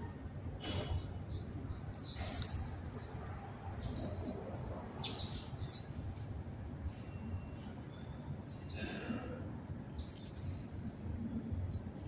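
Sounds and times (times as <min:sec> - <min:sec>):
steady low rumble: 0:00.0 - 0:08.8
sparrows chirping: 0:00.6 - 0:09.2, 0:09.9 - 0:12.0.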